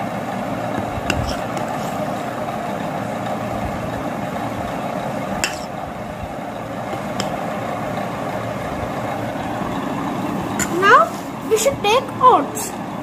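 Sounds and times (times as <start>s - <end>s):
steady background hum: 0.0s - 13.0s
spoon clinking on ceramic bowl: 5.4s - 5.7s.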